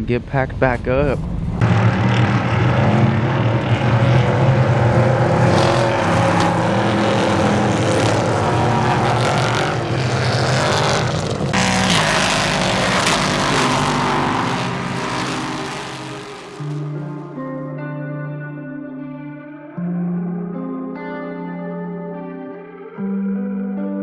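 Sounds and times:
race cars passing: 1.4 - 17.4.

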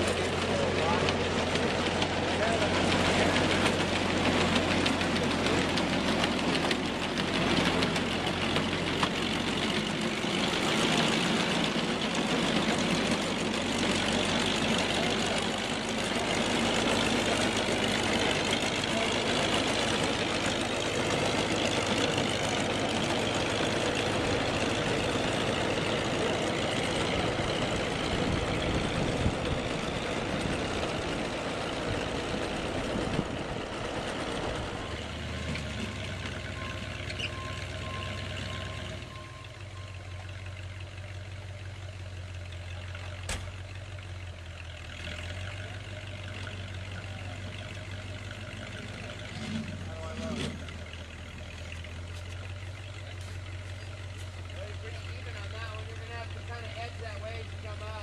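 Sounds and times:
steel tracks clattering on gravel: 0.0 - 39.1
tracked vehicle engine running: 0.0 - 58.0.

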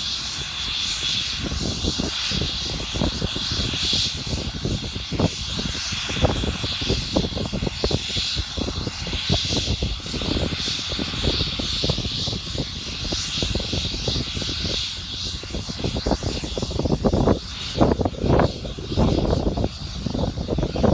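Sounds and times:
helicopter turbine engines running: 0.0 - 20.9.

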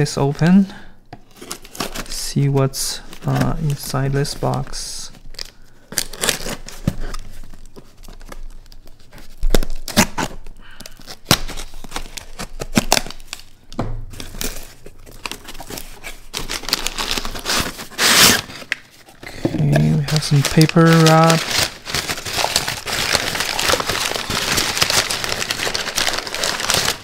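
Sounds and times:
packing paper rustling: 0.0 - 27.0
knife slitting packing tape: 9.8 - 10.4, 16.4 - 18.8
cardboard box tearing and scraping: 14.4 - 18.8, 21.1 - 27.0.

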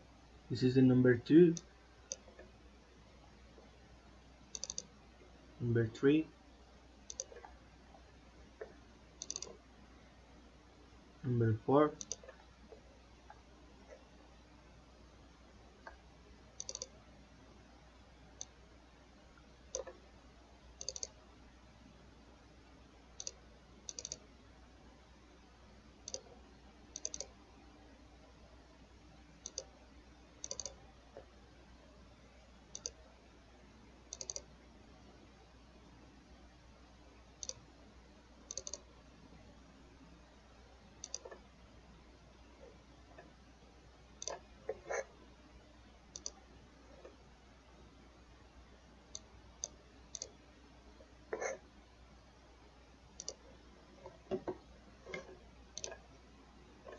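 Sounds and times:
faint low hum: 0.0 - 56.9
computer mouse clicking: 1.6 - 2.5, 4.5 - 5.0, 7.0 - 7.6, 8.6 - 9.6, 11.9 - 14.0, 16.6 - 17.0, 18.4 - 18.6, 19.7 - 20.0, 20.8 - 21.2, 23.2 - 24.3, 26.0 - 27.4, 29.4 - 29.8, 30.4 - 31.3, 32.7 - 33.0, 34.1 - 34.5, 37.4 - 37.7, 38.4 - 38.9, 41.0 - 41.5, 44.2 - 45.1, 46.1 - 46.4, 49.1 - 50.4, 51.3 - 51.6, 53.1 - 53.4, 54.0 - 56.0.

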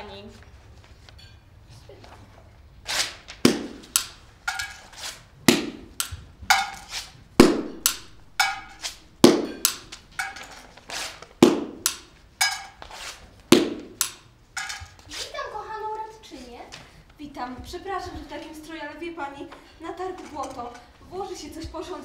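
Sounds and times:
sharp wooden knocks: 3.4 - 4.8, 5.4 - 10.5, 11.4 - 12.7.

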